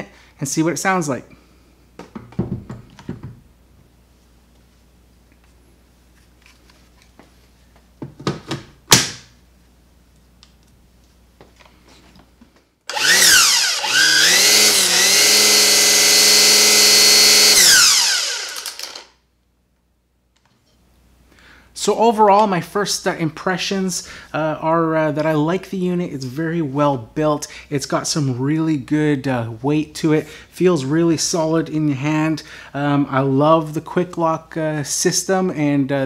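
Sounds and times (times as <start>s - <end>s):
string trimmer motor whining: 12.9s - 19.1s.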